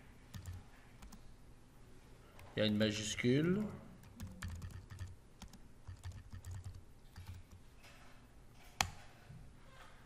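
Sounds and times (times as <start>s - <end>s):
computer keyboard typing: 0.3s - 1.2s, 3.4s - 7.6s.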